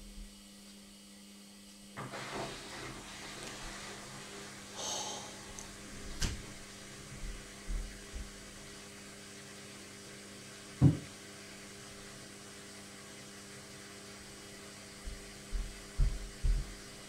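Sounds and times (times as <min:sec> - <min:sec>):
washing machine hum: 0:00.0 - 0:17.0
washing machine thumps: 0:10.8 - 0:11.1.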